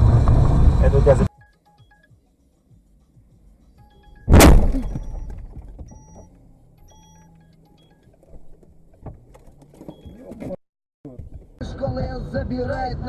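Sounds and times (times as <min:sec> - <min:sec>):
car crash impact: 0:04.3 - 0:06.0.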